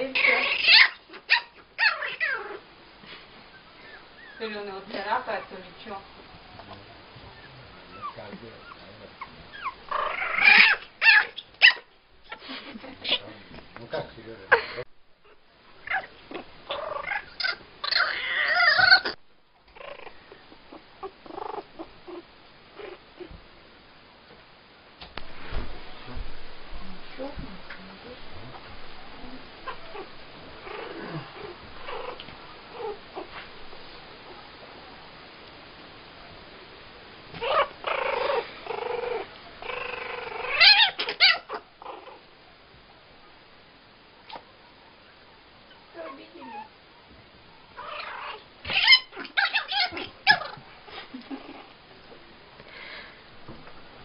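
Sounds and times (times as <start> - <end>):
young pet high-pitched cries: 0.0 - 2.6, 7.4 - 12.4, 15.8 - 19.2, 37.4 - 42.2, 47.8 - 50.6
wavering animal cry: 0.0 - 2.7, 7.3 - 12.4, 15.8 - 19.2, 29.6 - 33.3, 37.4 - 42.3, 47.8 - 50.6.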